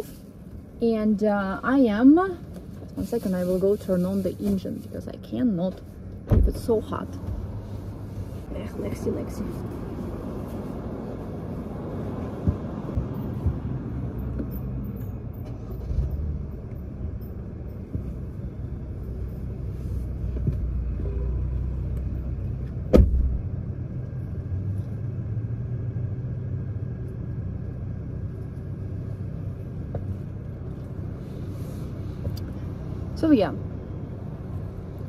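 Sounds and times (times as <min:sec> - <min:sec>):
car engine rumbling: 0:00.0 - 0:35.0
loud sharp thump: 0:22.9 - 0:23.4.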